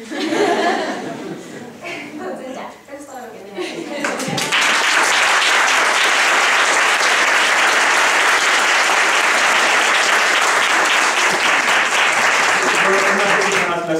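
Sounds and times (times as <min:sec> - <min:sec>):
audience applauding: 0:04.0 - 0:13.9.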